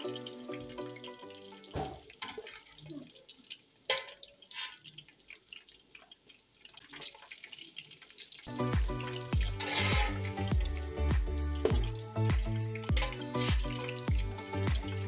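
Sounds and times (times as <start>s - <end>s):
chicken frying in oil: 0.0s - 15.0s.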